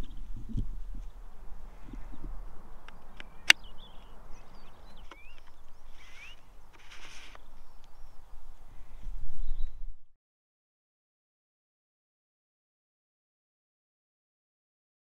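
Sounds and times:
small birds chirping: 0:00.0 - 0:09.9
low wind rumble: 0:00.0 - 0:10.2.

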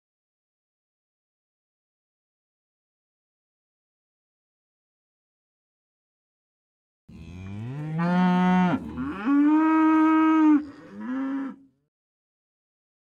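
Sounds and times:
cow mooing: 0:07.1 - 0:11.8.

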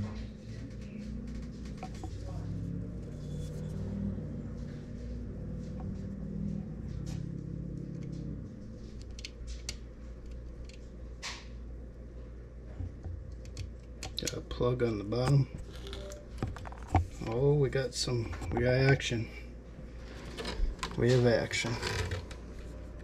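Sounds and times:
low rumble: 0:00.0 - 0:09.1.

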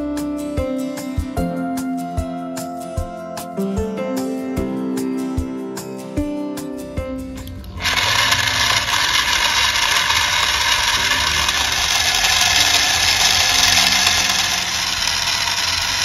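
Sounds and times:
small motor hissing: 0:07.4 - 0:16.0.

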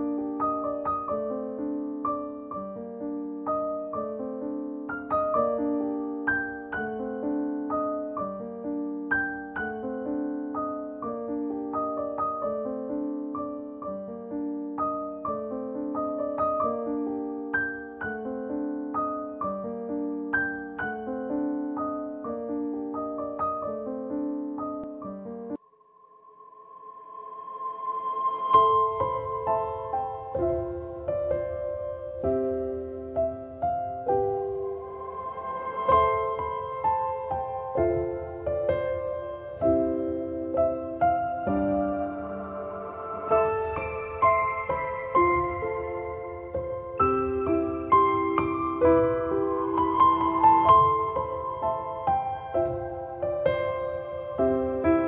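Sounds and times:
piano music: 0:00.0 - 0:25.6, 0:26.8 - 0:55.0.

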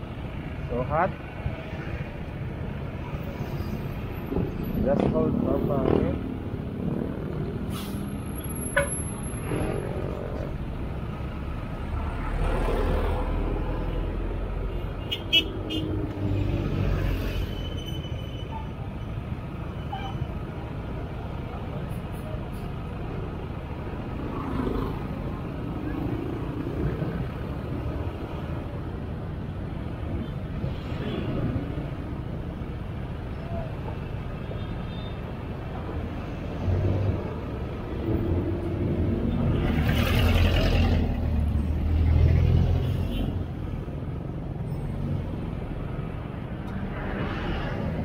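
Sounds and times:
heavy vehicle engine rumble: 0:00.0 - 0:34.4
street noise: 0:00.0 - 0:48.0
motorcycle and car engines passing: 0:04.3 - 0:07.7, 0:09.1 - 0:14.6, 0:23.8 - 0:28.8, 0:36.4 - 0:43.2.

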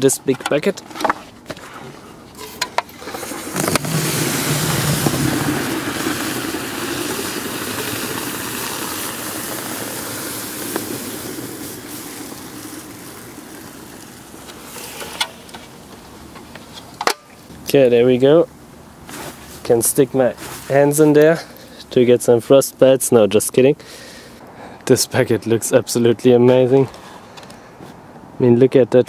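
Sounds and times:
liquid air boiling hiss: 0:02.0 - 0:17.5.

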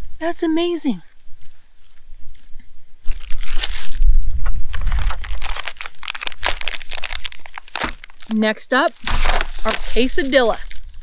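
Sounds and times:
plastic bags crinkling: 0:03.1 - 0:04.0, 0:04.7 - 0:11.0.

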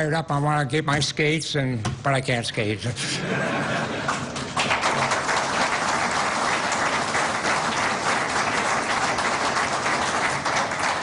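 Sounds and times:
audience applause: 0:03.4 - 0:11.0.

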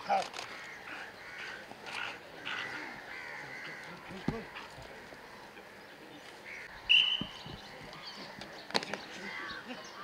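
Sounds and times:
birds calling: 0:00.0 - 0:10.0
crows cawing: 0:00.4 - 0:06.8, 0:07.9 - 0:10.0
loud high whistle: 0:06.9 - 0:07.4.

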